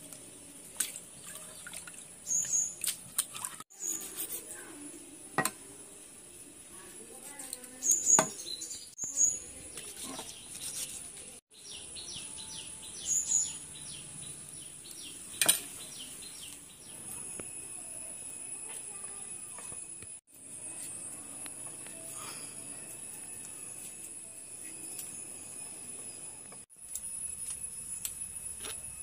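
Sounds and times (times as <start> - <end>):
birds chirping: 1.2 - 4.1, 7.7 - 17.4.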